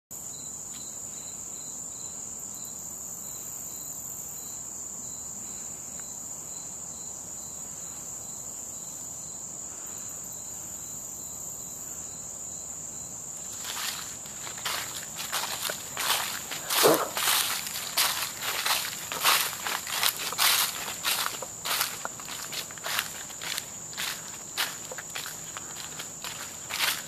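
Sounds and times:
faint pulsing insect call: 0:00.2 - 0:27.0
high-pitched insect chorus trilling: 0:00.2 - 0:27.0
footsteps on dry leaves: 0:13.4 - 0:27.0.

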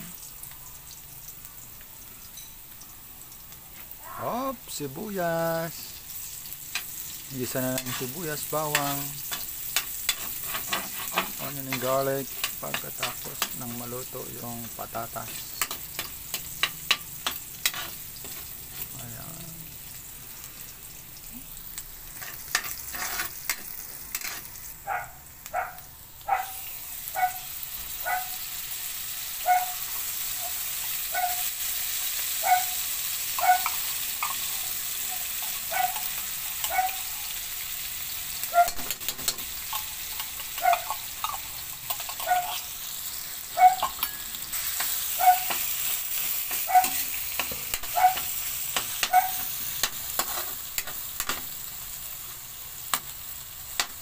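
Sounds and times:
food sizzling in a wok: 0:00.0 - 0:54.0
metal spatula scraping a pan: 0:06.2 - 0:13.8, 0:15.2 - 0:18.9, 0:22.1 - 0:24.6, 0:38.7 - 0:42.8, 0:43.7 - 0:51.4.

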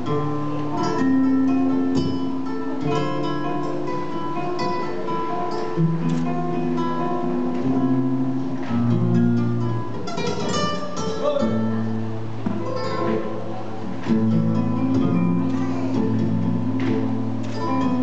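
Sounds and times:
acoustic guitar flamenco: 0:00.0 - 0:18.0.

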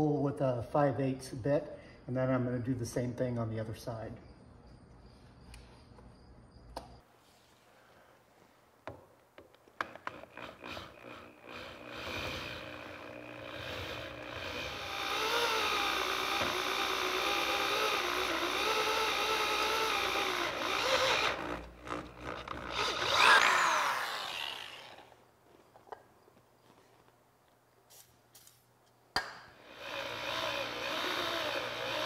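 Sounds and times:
electric drill boring metal: 0:09.8 - 0:25.2, 0:29.6 - 0:32.0.

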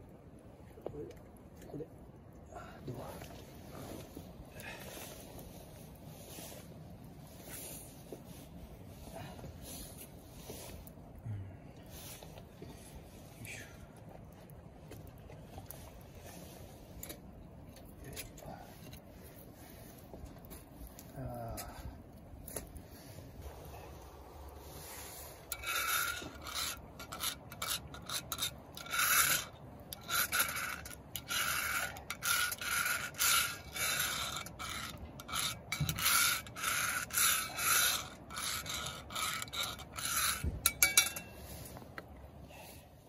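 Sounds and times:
utensil scraping a skillet: 0:24.6 - 0:41.9.

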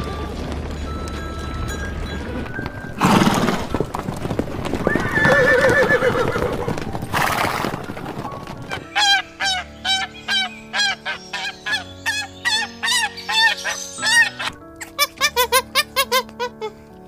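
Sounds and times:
galloping hooves: 0:00.0 - 0:17.0
low background music: 0:00.0 - 0:17.0
horse whinnying: 0:03.0 - 0:04.0, 0:04.8 - 0:16.6
geese honking: 0:08.7 - 0:16.8.

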